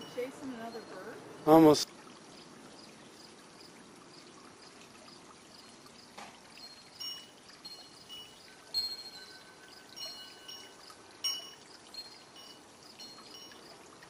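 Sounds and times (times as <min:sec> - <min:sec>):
wind chime notes: 0:00.0 - 0:01.2, 0:06.6 - 0:13.8
trickling water: 0:00.0 - 0:14.0.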